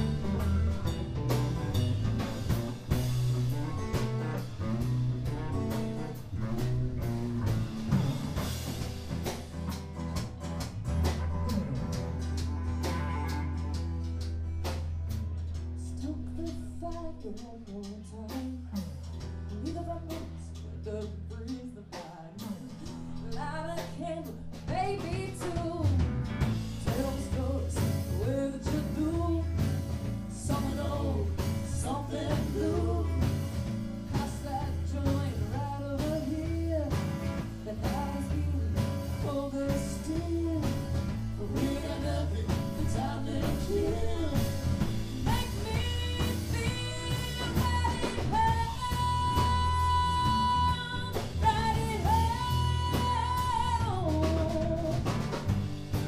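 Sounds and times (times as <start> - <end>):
live band playing: 0.0 - 56.0
woman singing: 15.8 - 26.1, 26.8 - 55.2.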